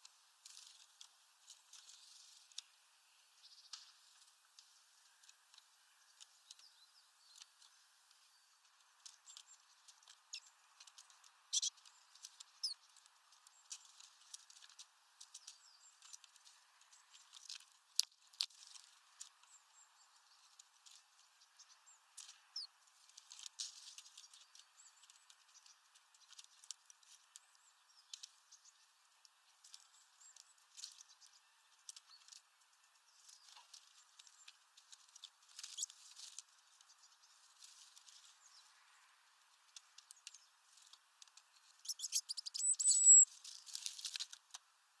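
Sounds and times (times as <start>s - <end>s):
thin high bird calls: 5.9s - 16.3s, 29.7s - 38.9s, 41.5s - 43.8s.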